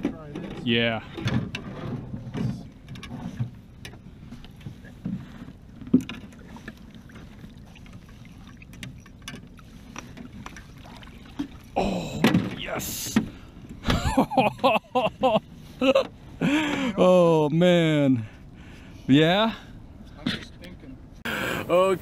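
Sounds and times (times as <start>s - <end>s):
water splashing against boat: 0.0s - 16.9s.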